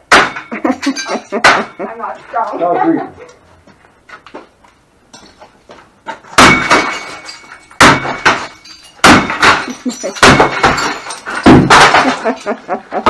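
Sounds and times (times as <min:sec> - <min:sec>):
sledgehammer striking appliance: 0:00.0 - 0:00.6, 0:06.3 - 0:12.2
breaking pieces rattling: 0:06.4 - 0:12.8.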